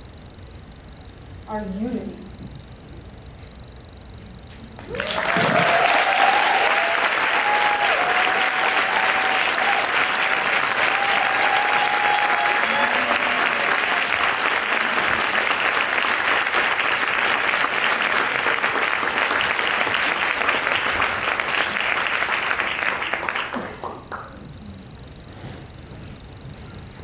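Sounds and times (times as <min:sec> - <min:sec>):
audience applauding: 0:04.8 - 0:24.4.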